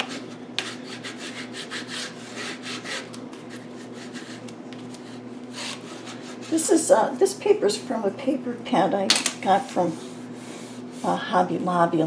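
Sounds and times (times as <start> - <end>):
bone folder rubbing paper: 0.0 - 6.7.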